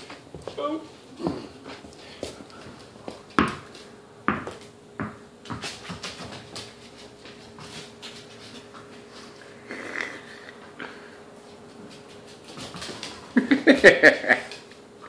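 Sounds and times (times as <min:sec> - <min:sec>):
tennis ball bouncing on wooden floor: 0:03.1 - 0:06.1.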